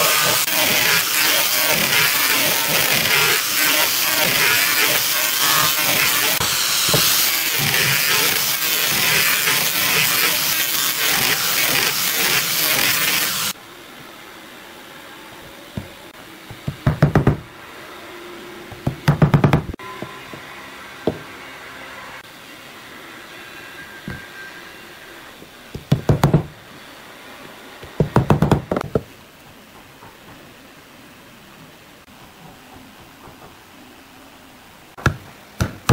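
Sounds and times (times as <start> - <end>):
grinder sanding wood: 0.0 - 13.6.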